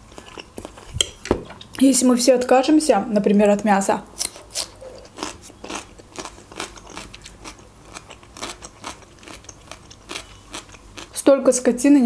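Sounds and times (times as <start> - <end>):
cucumber crunching while chewed: 0.0 - 1.2, 4.2 - 11.2.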